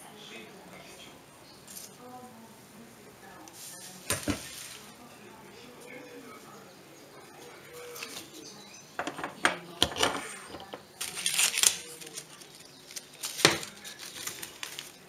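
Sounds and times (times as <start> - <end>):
plastic kitchenware clattering: 9.0 - 11.6, 12.4 - 15.0.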